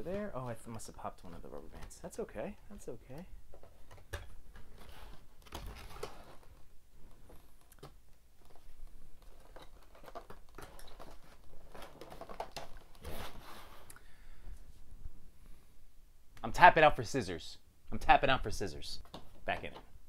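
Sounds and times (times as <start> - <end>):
cardboard packaging rustling: 3.5 - 13.9.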